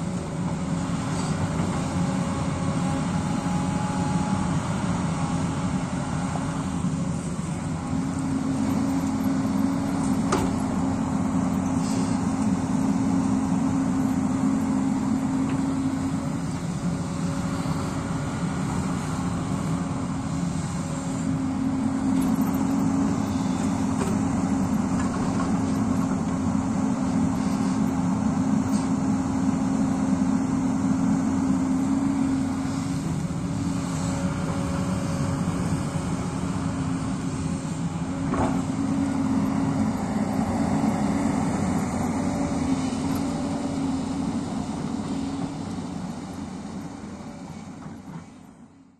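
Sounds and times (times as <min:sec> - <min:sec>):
excavator diesel engine under load: 0:00.0 - 0:48.9.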